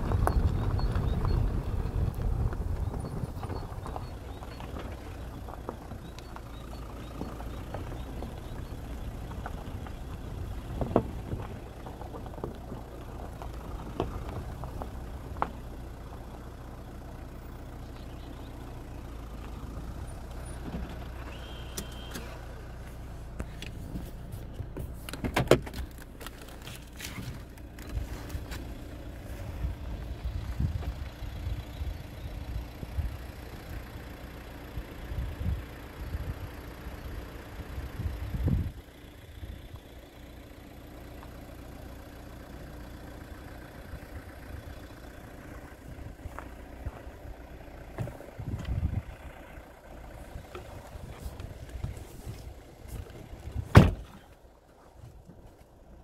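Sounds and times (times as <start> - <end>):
low wind rumble on microphone: 0.0 - 16.0, 27.8 - 34.0, 34.7 - 39.9, 43.8 - 54.2.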